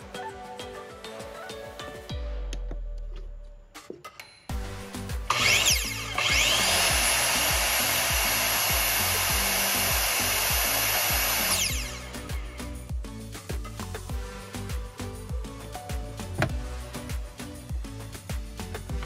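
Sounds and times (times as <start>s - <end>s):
power tool motor whining: 5.3s - 12.5s.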